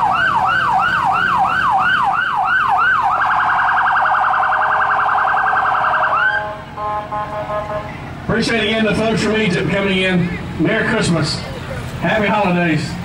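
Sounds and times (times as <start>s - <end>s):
fire truck siren yelping: 0.0s - 8.2s.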